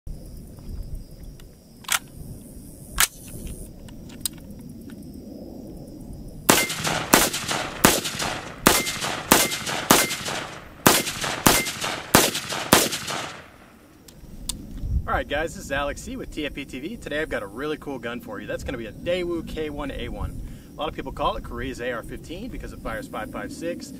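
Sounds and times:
rifle shots: 0:06.5 - 0:13.8
sharp clicks: 0:06.5 - 0:14.6.

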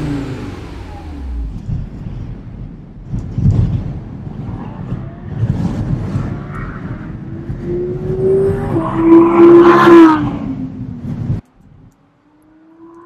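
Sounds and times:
car engine accelerating hard: 0:00.0 - 0:02.6.

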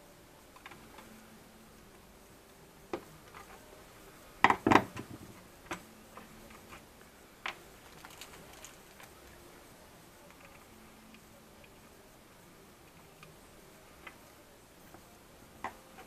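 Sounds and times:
plastic clicks and knocks: 0:04.4 - 0:05.8.

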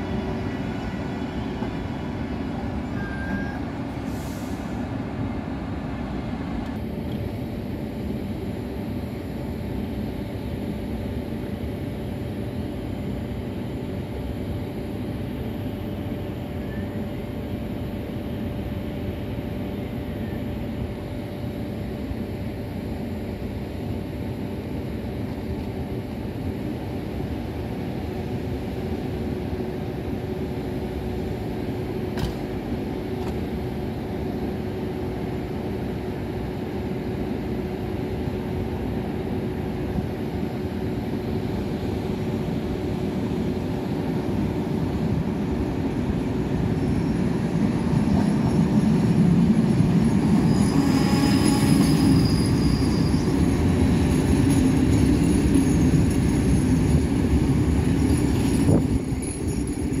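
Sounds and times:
electric train passing: 0:00.0 - 1:00.0
high wheel squeal: 0:02.8 - 0:03.7, 0:49.9 - 0:56.8.

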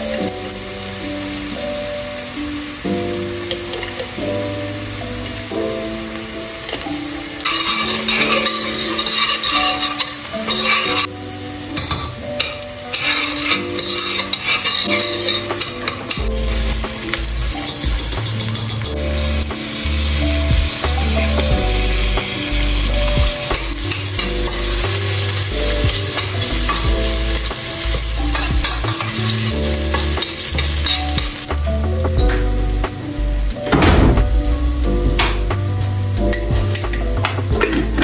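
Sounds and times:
food sizzling in pot: 0:00.0 - 0:33.5
metal spoon scraping pot: 0:07.5 - 0:11.1, 0:13.0 - 0:16.2
background music with bass: 0:13.6 - 0:38.0.

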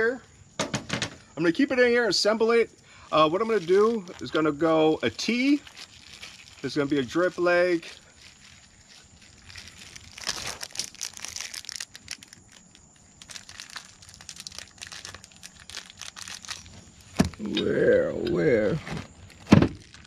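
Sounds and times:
plastic bag crinkling: 0:03.0 - 0:17.4, 0:18.8 - 0:20.0.

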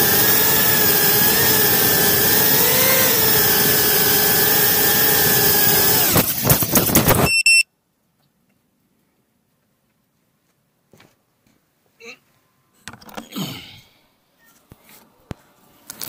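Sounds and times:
drone motors whining: 0:00.0 - 0:07.4.

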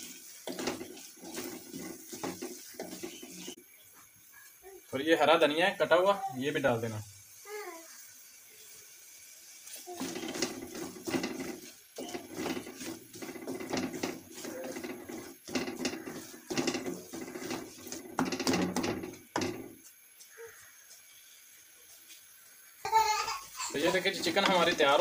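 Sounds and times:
wooden spatula scraping metal pan: 0:00.0 - 0:03.6, 0:09.9 - 0:19.8, 0:23.6 - 0:25.0.

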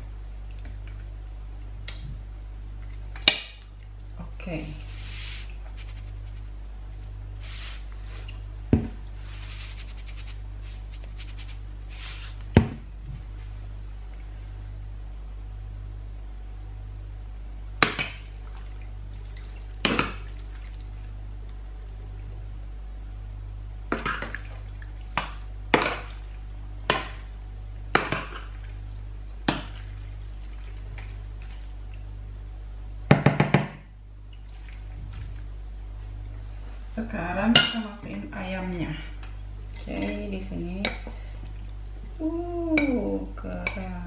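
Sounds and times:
steady low hum: 0:00.0 - 0:44.0.

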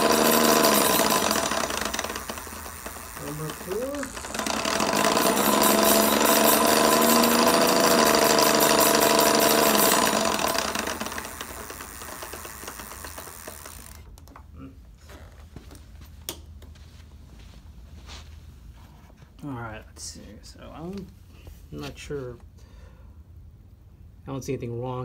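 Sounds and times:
hub motor grinding rattle: 0:00.0 - 0:14.4.

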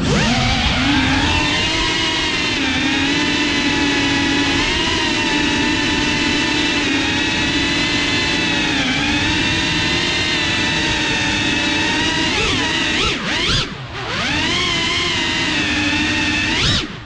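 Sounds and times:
drone motors whining: 0:00.0 - 0:17.0.

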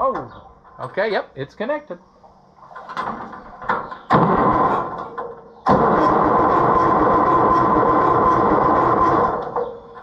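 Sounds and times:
tractor engine cranking: 0:02.8 - 0:10.0
starter whining: 0:03.8 - 0:10.0.

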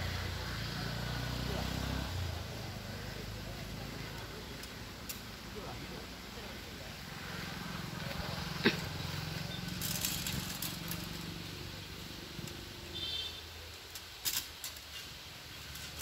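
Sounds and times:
metallic clatters: 0:09.5 - 0:11.4, 0:13.7 - 0:16.0.

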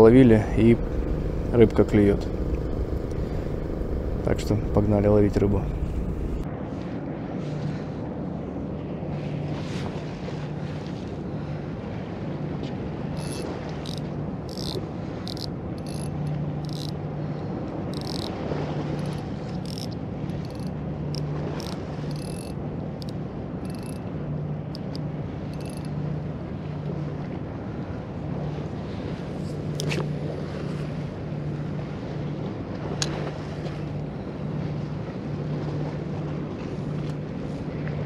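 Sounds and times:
steady low hum: 0:00.0 - 0:06.5
sea noise: 0:00.0 - 0:38.0
wind: 0:00.0 - 0:38.0
sharp high-pitched ticks: 0:00.2 - 0:06.4.

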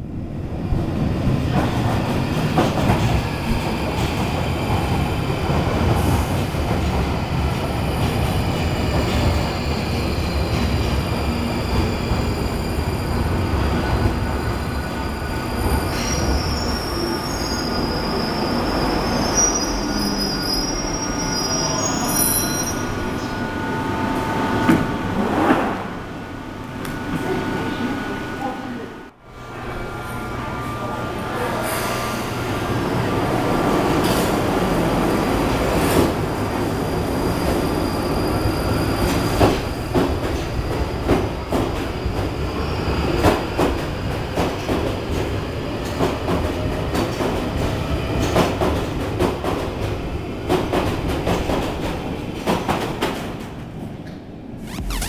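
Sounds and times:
train rumbling into station: 0:00.0 - 0:54.8
wheel and brake squeal: 0:15.8 - 0:23.4.

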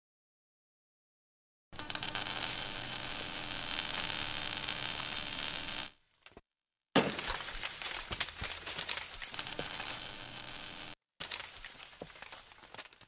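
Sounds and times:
fire hissing and crackling: 0:01.8 - 0:06.0, 0:07.3 - 0:12.9
scattered crackling: 0:01.8 - 0:06.0, 0:07.0 - 0:13.0.

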